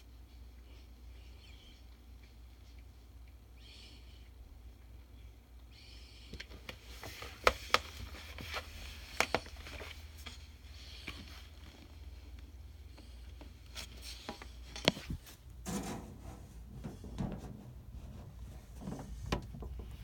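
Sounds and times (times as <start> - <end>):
low steady hum: 0.0 - 20.0
rubbing and scraping: 13.8 - 20.0.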